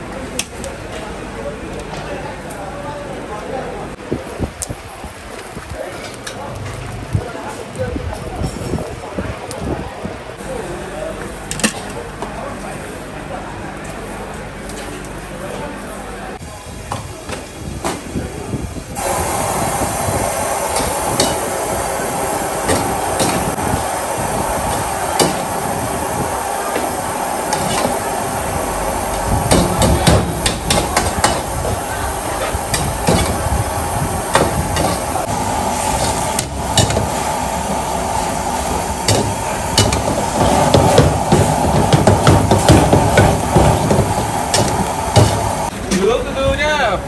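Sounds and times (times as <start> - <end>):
steady hum: 19.0 - 45.9.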